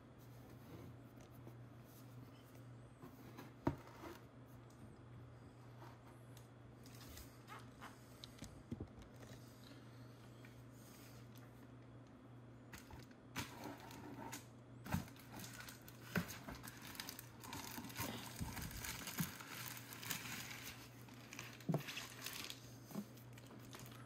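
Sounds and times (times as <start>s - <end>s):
foil insulation crinkling: 12.8s - 24.0s.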